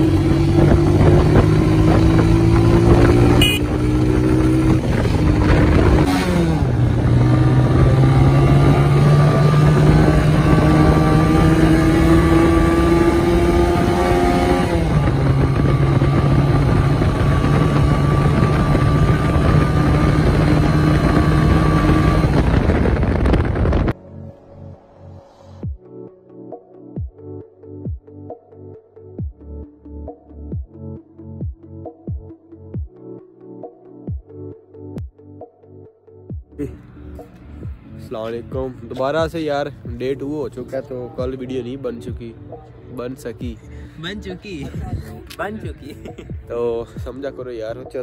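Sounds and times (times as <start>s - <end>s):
motorcycle engine accelerating: 0.0s - 24.0s.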